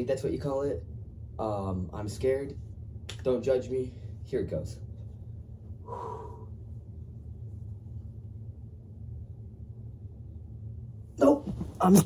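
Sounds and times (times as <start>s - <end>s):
steady low hum: 0.0s - 12.0s
short sharp breath: 5.8s - 6.6s.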